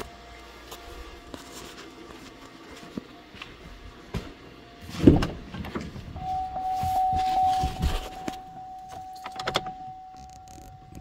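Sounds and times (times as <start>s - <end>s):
steady high tone: 6.2s - 11.0s.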